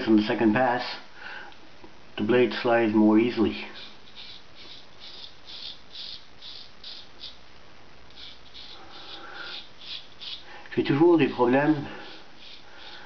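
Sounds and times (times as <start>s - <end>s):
straight razor scraping stubble: 3.8s - 7.4s, 8.1s - 10.4s.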